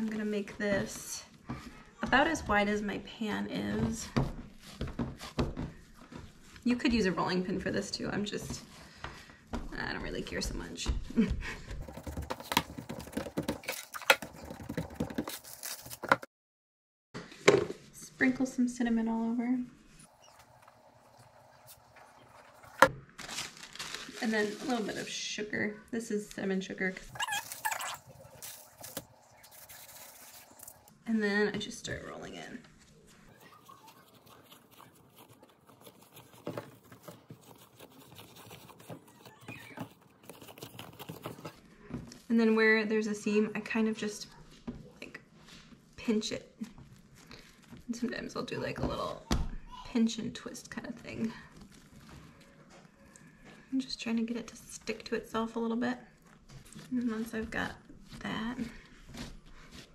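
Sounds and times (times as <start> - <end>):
hands patting sticky dough: 11.2 - 16.1.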